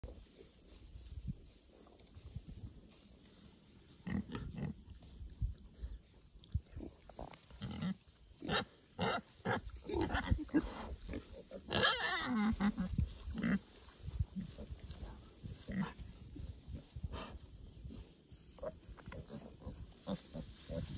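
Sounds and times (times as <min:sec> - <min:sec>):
pigs grunting: 0:06.8 - 0:13.7
pig squealing: 0:11.6 - 0:12.9.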